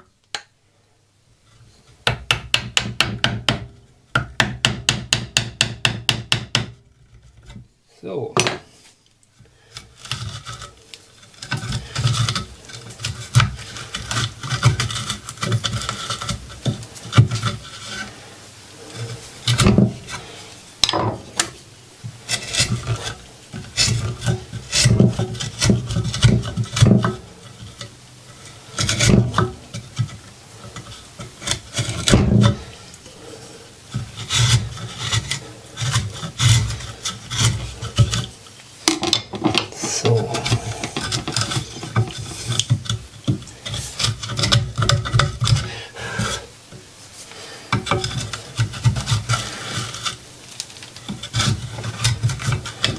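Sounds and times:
chisel scraping wood: 0:09.6 - 0:38.5, 0:39.3 - 0:46.6, 0:47.7 - 0:50.3, 0:50.9 - 0:52.9.

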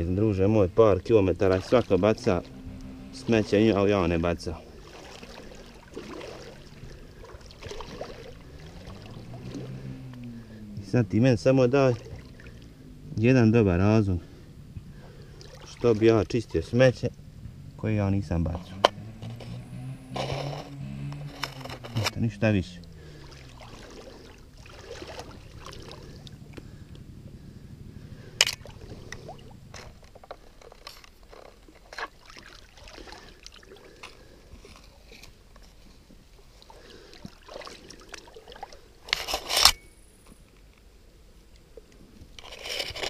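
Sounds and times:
stream water sloshing: 0:00.0 - 0:43.0
rustles of grass and branches: 0:18.2 - 0:43.0.

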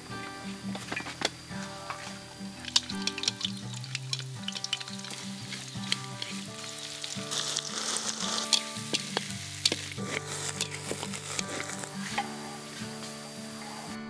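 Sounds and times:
food sizzling in a pan: 0:00.0 - 0:14.0
utensil clicking against pan: 0:01.6 - 0:12.4.

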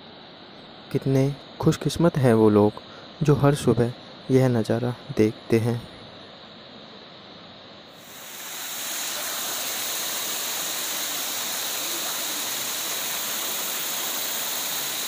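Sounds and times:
faint hiss: 0:00.0 - 0:15.0
stream cascading over rocks: 0:08.1 - 0:15.0.

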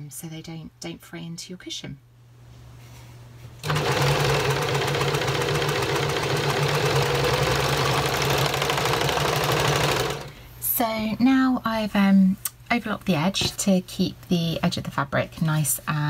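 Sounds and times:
overlocker sewing machine running: 0:03.6 - 0:10.3.

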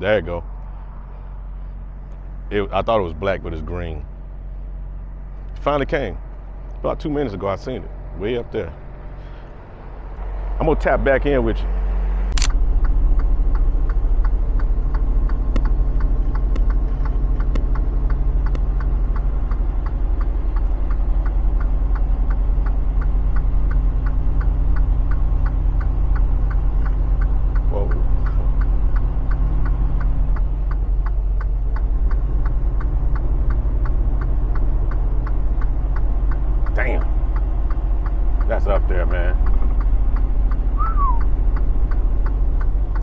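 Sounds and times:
diesel truck engine droning: 0:00.0 - 0:43.0
regular ticking: 0:12.4 - 0:43.0.

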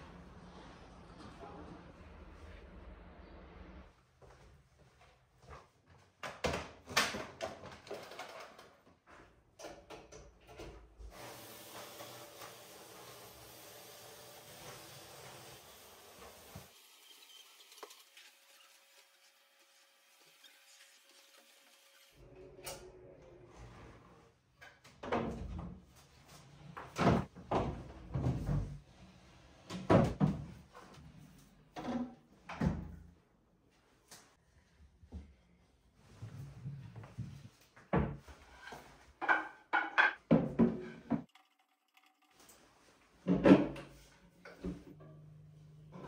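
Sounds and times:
knocks and clatter of handling: 0:06.2 - 0:10.8
vacuum cleaner running: 0:11.1 - 0:17.1.

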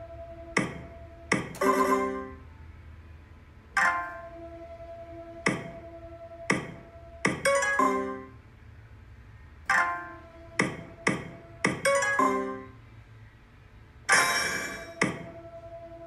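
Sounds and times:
slot machine button clicks: 0:00.6 - 0:02.2
electronic chime tones: 0:01.6 - 0:02.4, 0:07.4 - 0:08.3.

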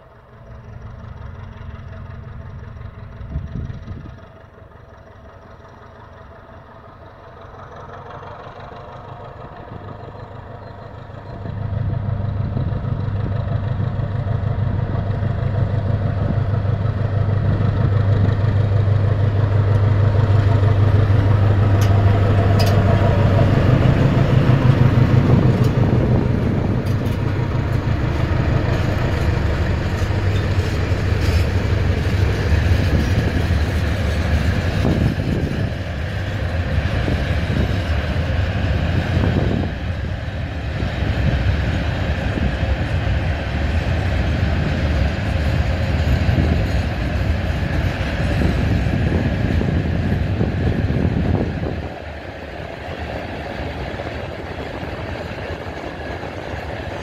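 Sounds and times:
diesel locomotive engine rumbling: 0:00.0 - 0:57.0
freight wagons rolling past: 0:13.4 - 0:36.7.

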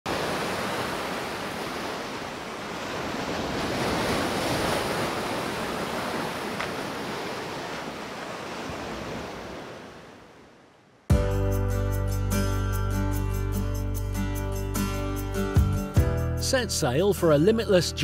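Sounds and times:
waves breaking on beach: 0:00.1 - 0:10.8.

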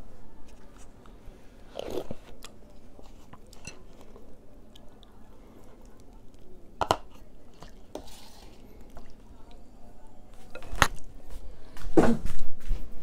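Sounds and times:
person chewing: 0:01.7 - 0:09.6.

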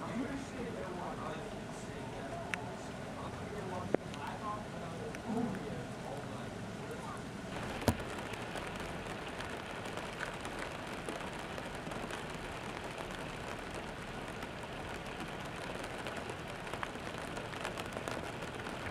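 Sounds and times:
rain hissing: 0:00.0 - 0:18.9
raindrops ticking on ice: 0:07.5 - 0:18.9.

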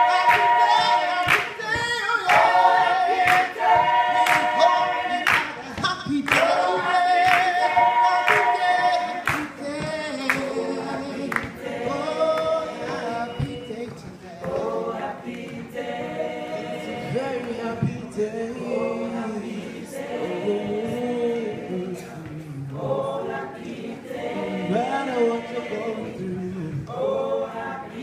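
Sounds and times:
mixed choir singing: 0:00.0 - 0:28.0
hand claps: 0:00.2 - 0:00.6, 0:01.2 - 0:02.6, 0:03.2 - 0:04.6, 0:05.2 - 0:08.6, 0:09.2 - 0:10.6, 0:11.3 - 0:11.6.

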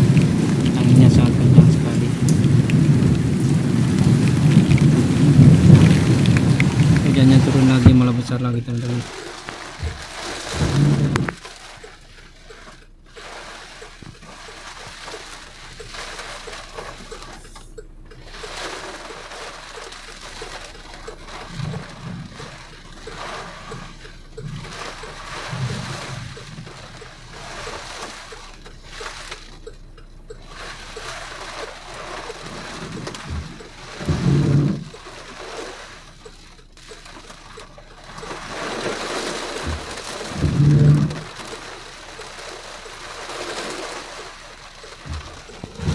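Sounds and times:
low rumbles of wind gusts: 0:00.0 - 0:11.4, 0:31.3 - 0:35.1, 0:38.1 - 0:41.8
heavy rain splashing on glass: 0:00.0 - 0:45.9.

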